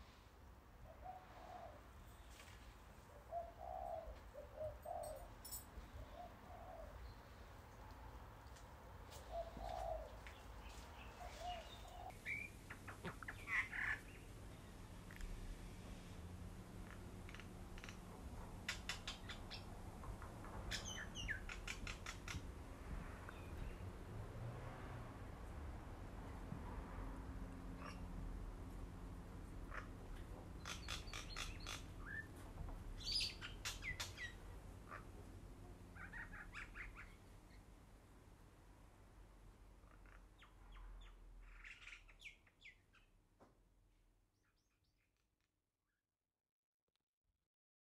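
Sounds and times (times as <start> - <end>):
small birds chirping: 9.2 - 15.3, 16.8 - 22.5, 29.6 - 32.4, 33.0 - 35.1, 35.8 - 37.7, 39.8 - 43.2.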